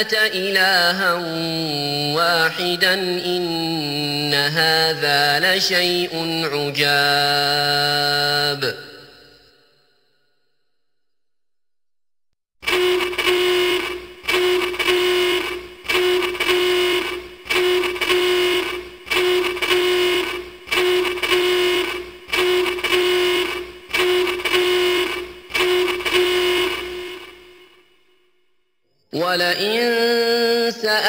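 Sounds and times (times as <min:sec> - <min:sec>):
buzzing alarm horn blasts: 0:12.6 - 0:28.6.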